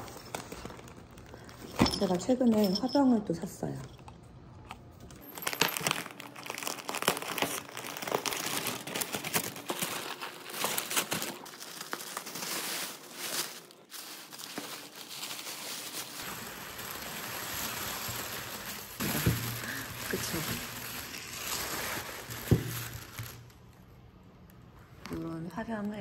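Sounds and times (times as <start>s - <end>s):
paper crinkling and rustling: 0.0s - 1.6s, 5.2s - 23.8s.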